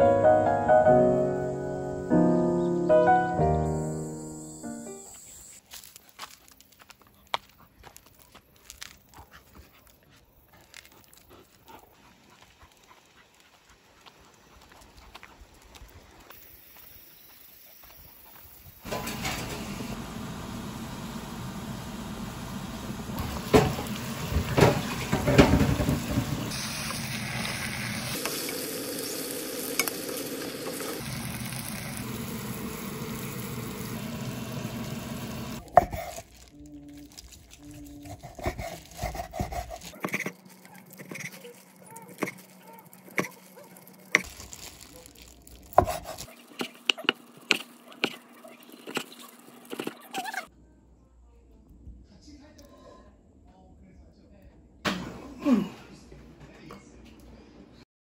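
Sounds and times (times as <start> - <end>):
knife slicing on wooden board: 38.0 - 40.4, 45.8 - 48.2.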